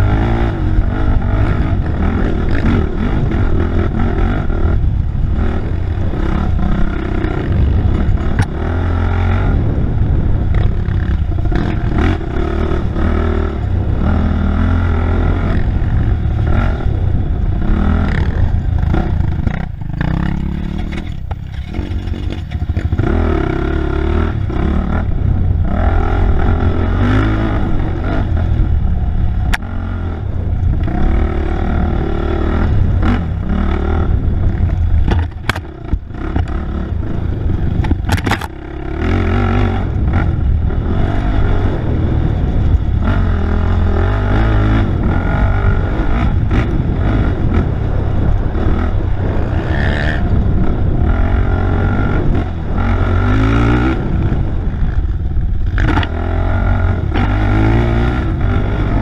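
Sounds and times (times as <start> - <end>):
off-road engine revving: 0.0 - 59.0
rattles and knocks from rough ground: 18.9 - 23.1, 34.6 - 36.6, 37.8 - 38.6.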